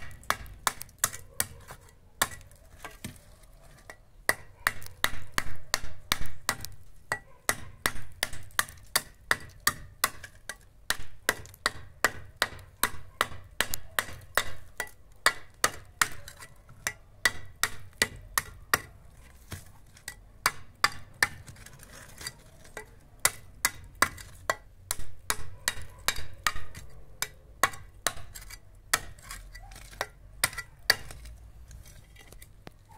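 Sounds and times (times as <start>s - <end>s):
trowel knocking on clay brick: 22.8s - 31.3s.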